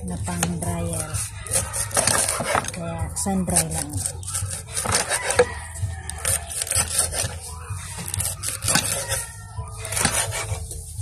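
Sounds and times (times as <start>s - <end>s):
blade scraping on board: 0.2s - 10.9s
knife chopping on wooden board: 0.3s - 2.8s, 4.7s - 5.6s, 9.8s - 10.6s.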